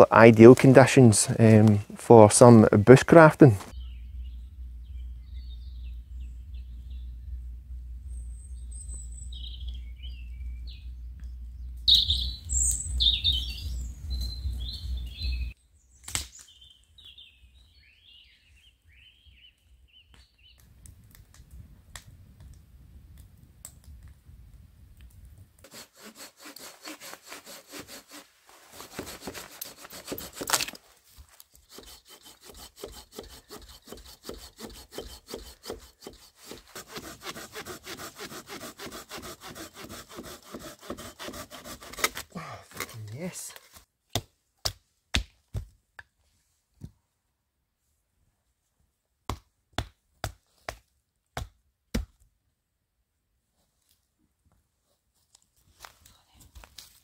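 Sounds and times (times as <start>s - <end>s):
steady low rumble: 3.8s - 13.0s
small birds chirping: 8.0s - 20.6s
hand saw cutting branch: 25.6s - 30.8s, 31.5s - 43.8s.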